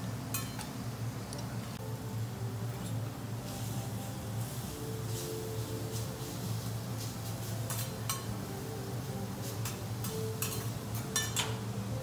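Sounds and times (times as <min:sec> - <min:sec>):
steady low hum: 0:00.0 - 0:12.0
metal spatulas clinking on griddle: 0:00.3 - 0:00.7, 0:07.7 - 0:08.4, 0:09.5 - 0:11.6.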